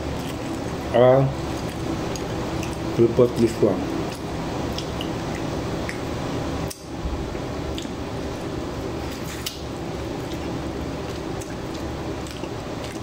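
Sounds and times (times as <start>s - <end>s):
person chewing food: 0.0s - 6.9s, 7.6s - 13.0s
low background hum: 0.0s - 13.0s.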